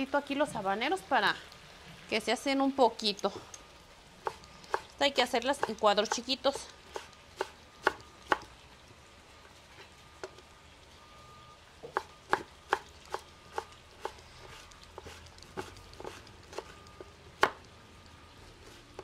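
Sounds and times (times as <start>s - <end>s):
knife striking wooden board: 17.4s - 17.6s.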